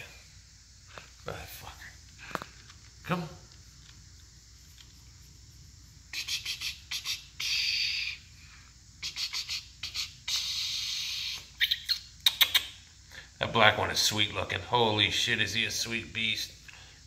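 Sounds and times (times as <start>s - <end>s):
cat hissing: 6.0s - 11.6s.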